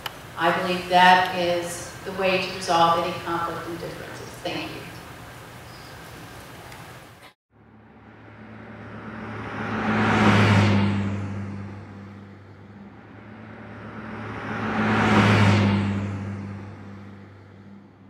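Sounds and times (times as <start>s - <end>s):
cars passing by: 7.6s - 18.0s.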